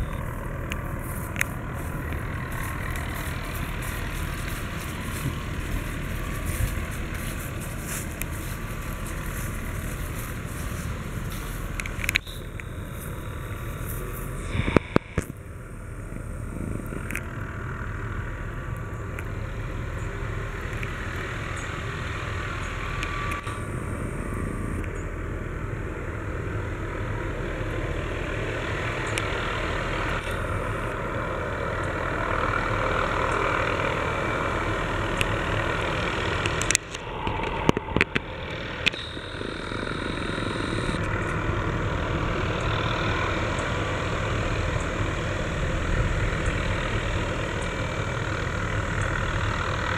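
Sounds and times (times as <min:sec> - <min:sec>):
distant helicopter drone: 0:00.0 - 0:49.9.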